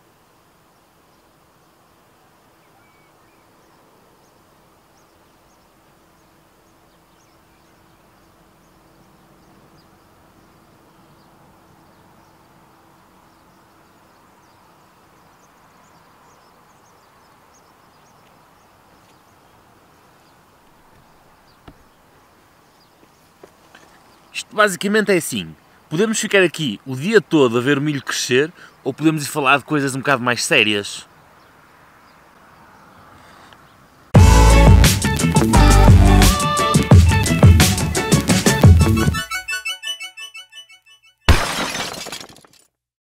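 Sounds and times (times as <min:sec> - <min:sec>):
low background hiss: 0:00.0 - 0:34.1
distant birds chirping: 0:00.0 - 0:42.0.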